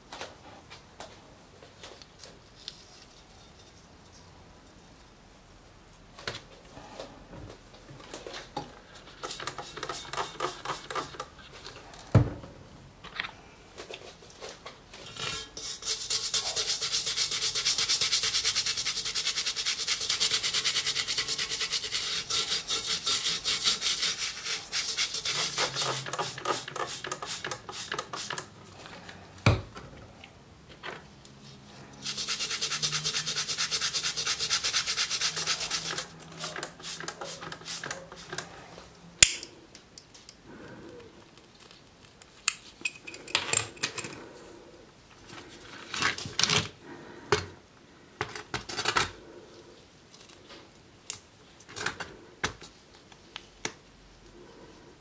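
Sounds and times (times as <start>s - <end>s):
plastic brush scrubbing metal: 9.1s - 11.3s, 15.4s - 28.5s, 32.0s - 38.5s.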